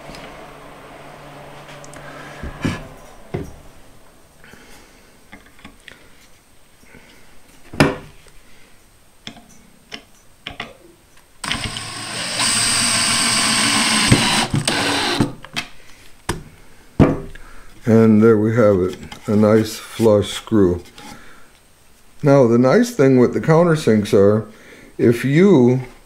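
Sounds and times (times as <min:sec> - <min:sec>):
drill driving screw into wood: 0:11.4 - 0:15.4.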